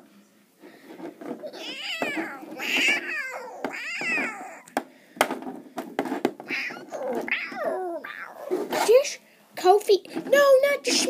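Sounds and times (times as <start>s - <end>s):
plastic toys knocking: 0.8s - 7.9s.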